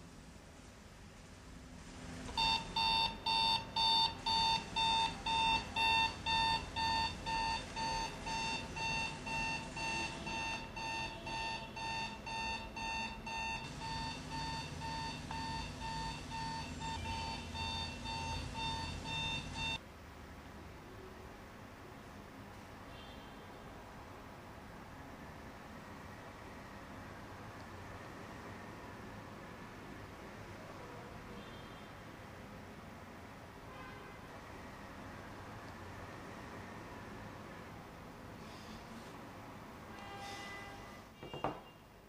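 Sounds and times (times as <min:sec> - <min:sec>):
alarm clock beeping: 0:02.4 - 0:19.8.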